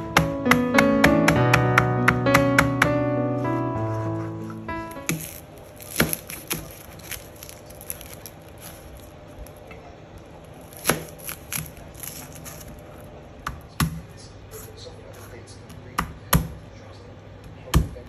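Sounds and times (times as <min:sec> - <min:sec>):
knife cutting onion: 0:04.9 - 0:09.0, 0:10.6 - 0:13.0.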